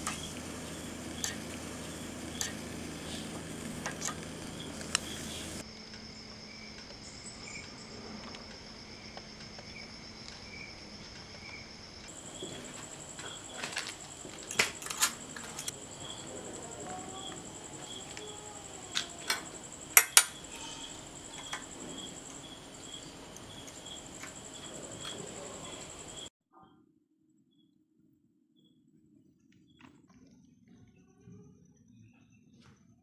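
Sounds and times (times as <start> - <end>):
sharp clicks: 0.0 - 6.0, 17.3 - 20.6, 21.2 - 25.3
insects chirping: 0.0 - 26.3.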